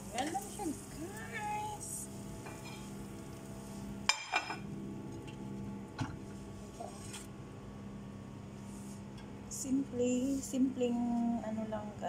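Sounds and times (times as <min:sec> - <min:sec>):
microwave oven humming: 0:00.0 - 0:12.0.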